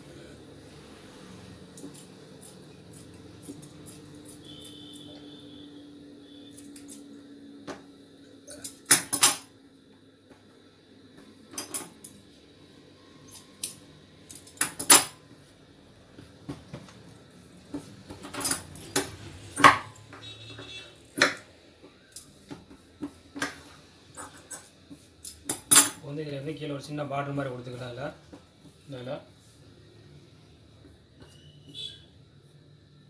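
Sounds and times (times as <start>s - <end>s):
scissors cutting cloth: 1.7s - 5.1s.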